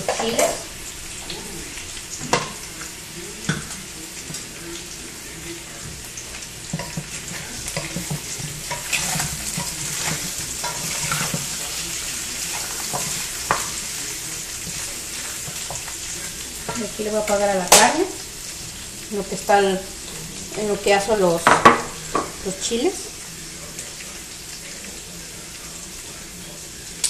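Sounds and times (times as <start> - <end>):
meat sizzling in a pot: 0.0 - 27.0
wooden spoon stirring: 5.8 - 17.5.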